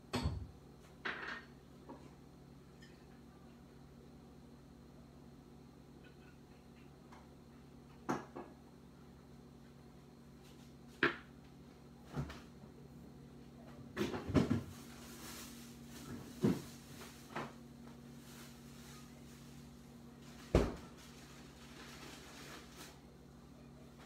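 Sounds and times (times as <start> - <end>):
tableware clattering: 1.0 - 1.5.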